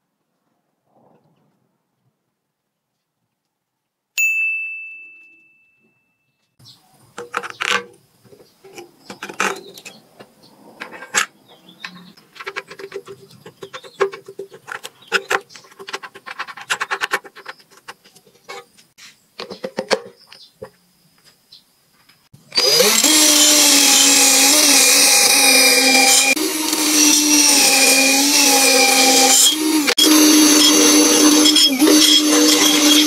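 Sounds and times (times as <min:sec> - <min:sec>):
bright ding: 0:04.2 - 0:06.4.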